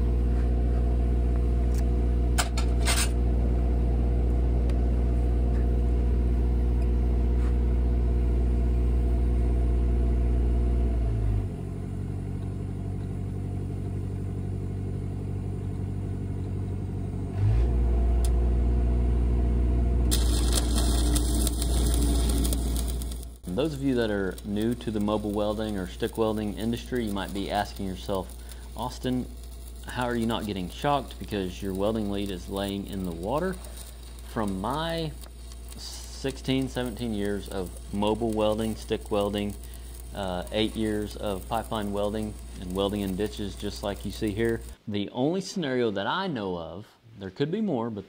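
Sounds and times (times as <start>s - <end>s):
welding machine engine running: 0.0s - 44.8s
hissing crackle of welding arc: 20.0s - 44.8s.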